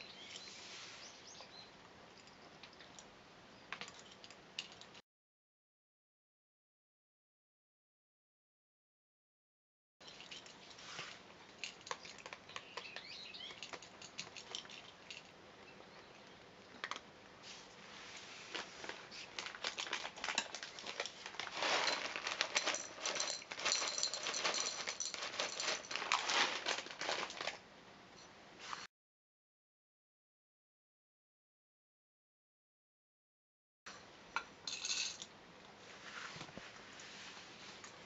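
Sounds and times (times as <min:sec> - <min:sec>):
cats crunching dry kibble: 0:10.1 - 0:15.4, 0:16.2 - 0:17.1, 0:18.4 - 0:27.6.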